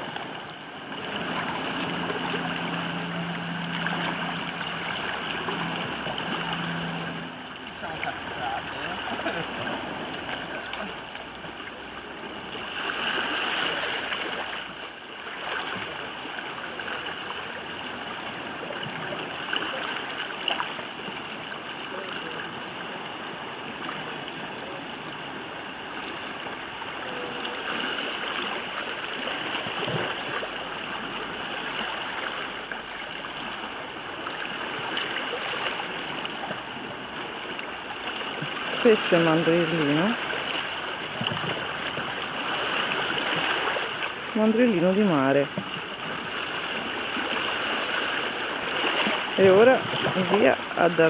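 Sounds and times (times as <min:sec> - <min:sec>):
waves lapping on rocky shore: 0:00.0 - 0:51.0.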